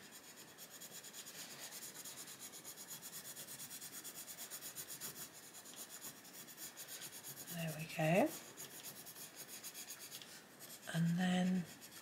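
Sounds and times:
pencil scribbling on paper: 0.0s - 12.0s.

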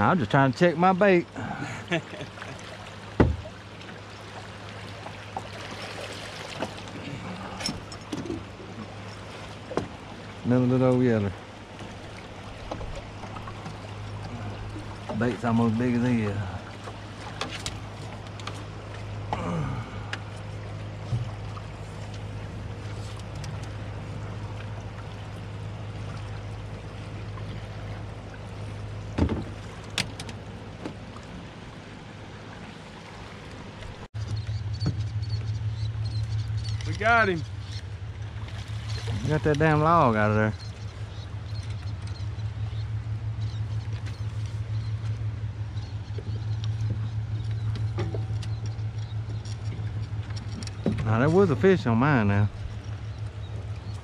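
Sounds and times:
river water lapping against boat: 0.0s - 54.0s
steady low hum: 0.0s - 54.0s
knocks on boat deck: 3.1s - 3.5s, 29.1s - 30.2s
light clicks: 34.3s - 37.9s.

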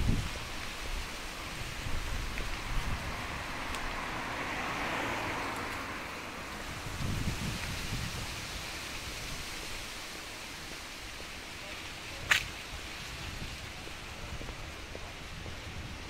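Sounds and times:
outdoor background hiss: 0.0s - 16.0s.

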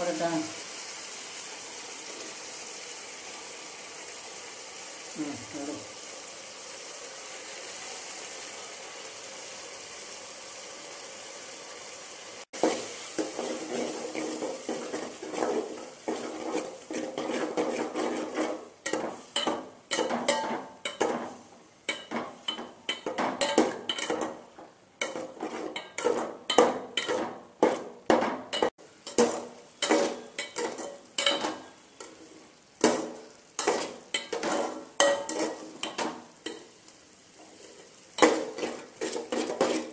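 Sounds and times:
vegetables sizzling: 0.0s - 39.9s.

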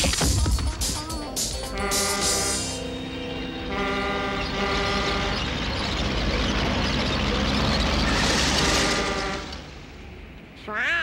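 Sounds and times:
truck engine and road noise rushing: 0.0s - 11.0s
truck horn: 1.7s - 5.7s, 8.4s - 9.7s.

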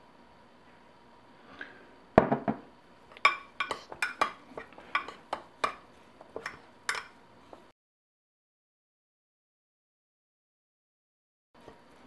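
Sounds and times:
metal spoon clinking in ceramic bowl: 3.2s - 5.8s, 6.4s - 7.2s.

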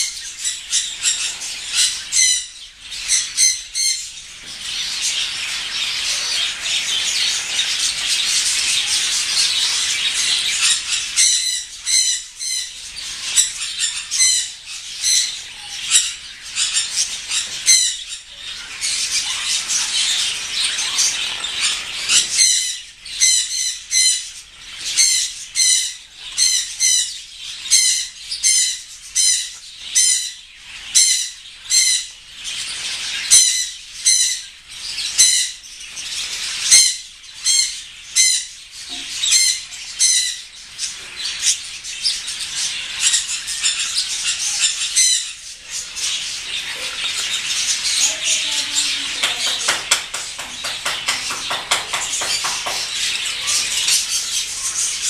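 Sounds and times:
parrots whistling chirps: 0.0s - 4.2s, 4.9s - 24.3s, 36.6s - 38.6s, 39.2s - 40.5s, 42.4s - 48.0s
high bird chatter: 0.0s - 55.0s.

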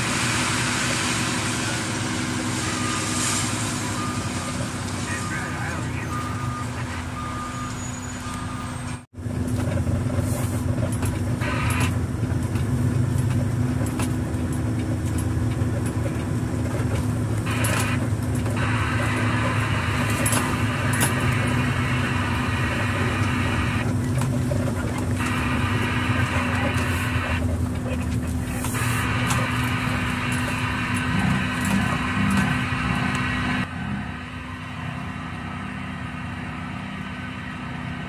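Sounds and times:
diesel engine droning: 0.0s - 38.0s
short repeating beep: 5.1s - 8.7s.

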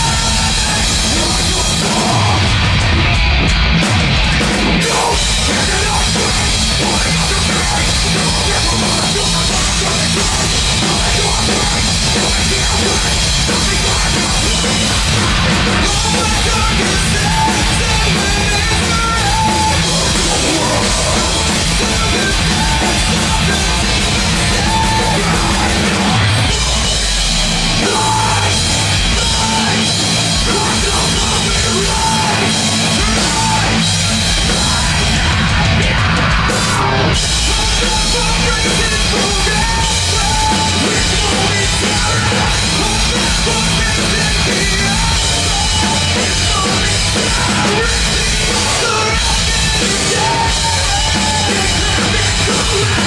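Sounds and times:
bass: 0.0s - 53.0s
distorted electric guitars: 0.0s - 53.0s
drum kit: 0.0s - 53.0s
vocalist screaming: 15.2s - 33.8s.

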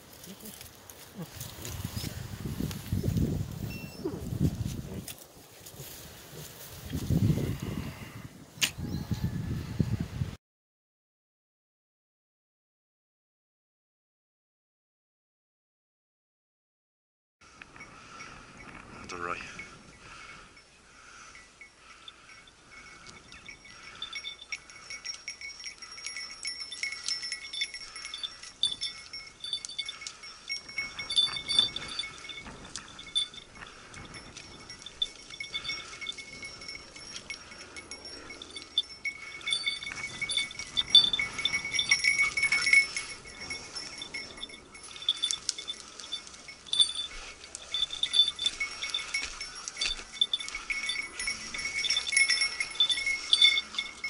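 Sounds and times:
dog collar bell jingling: 0.0s - 5.3s, 17.8s - 54.0s
rustling of dry brush: 0.0s - 7.4s, 24.0s - 54.0s.

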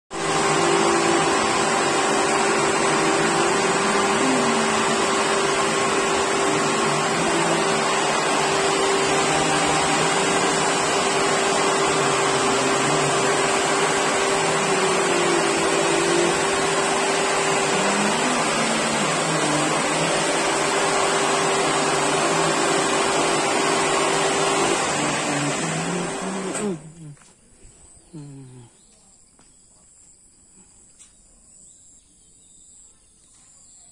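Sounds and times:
electric water pumps humming: 0.1s - 27.2s.

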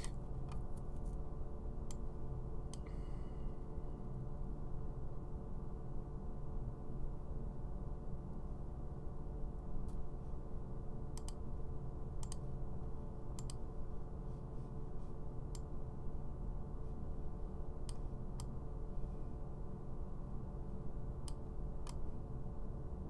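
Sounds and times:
steady low hum: 0.0s - 23.0s
computer mouse clicking: 11.2s - 11.4s, 12.2s - 12.4s, 13.4s - 13.6s, 21.2s - 22.0s.

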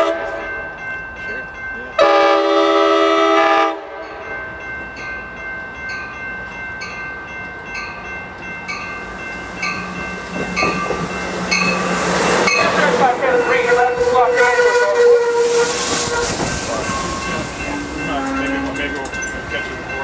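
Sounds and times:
train horn blast: 0.0s - 0.4s, 2.0s - 4.2s, 12.6s - 17.2s
train engine hum: 0.0s - 20.0s
bell dinging: 4.1s - 13.2s, 16.4s - 20.0s
train wheel noise: 7.4s - 20.0s.

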